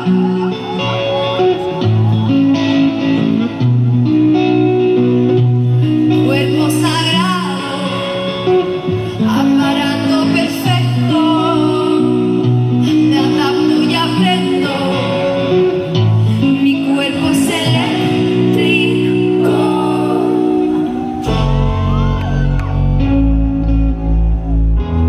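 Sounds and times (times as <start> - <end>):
guitar: 0.0 - 25.0
person singing: 5.8 - 22.9
held bass notes: 15.5 - 25.0.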